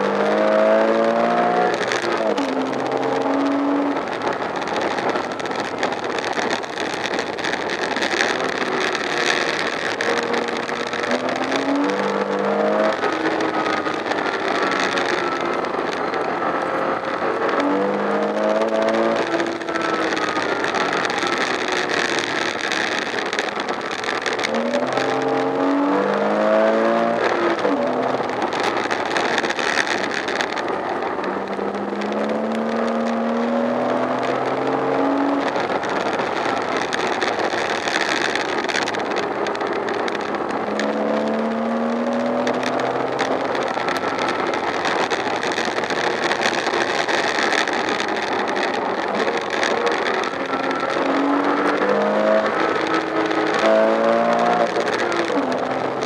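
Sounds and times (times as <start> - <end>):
car engine accelerating: 0.0 - 56.0
road and wind noise: 0.0 - 56.0.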